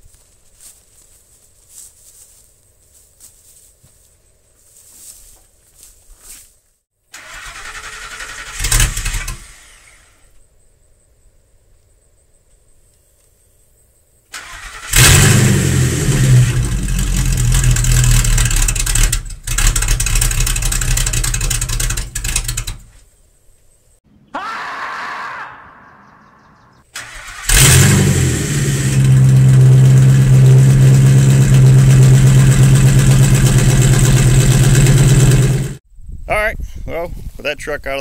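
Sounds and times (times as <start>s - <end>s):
starter cranking: 16.5s - 22.9s
truck engine running loudly: 27.5s - 35.8s.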